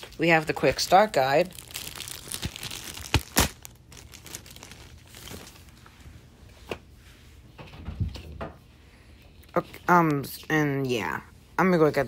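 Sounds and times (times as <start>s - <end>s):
paper and plastic rustling: 0.0s - 6.8s.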